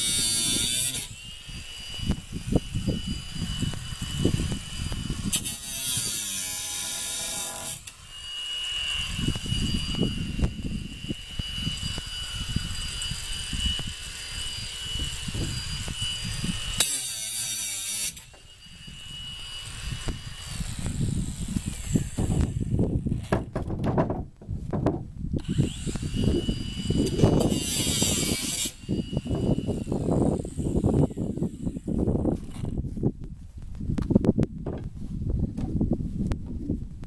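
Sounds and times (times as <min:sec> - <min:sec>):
cordless drill motor whine: 0:00.0 - 0:23.2, 0:25.4 - 0:32.8
knocks and handling noises: 0:23.2 - 0:25.1.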